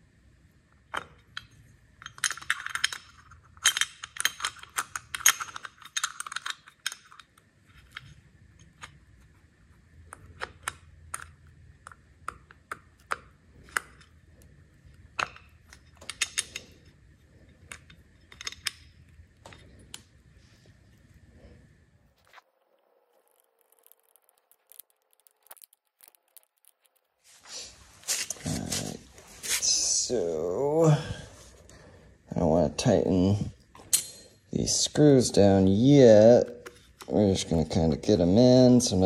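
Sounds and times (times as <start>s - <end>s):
saw parts clicking and clinking: 1.3s - 7.3s.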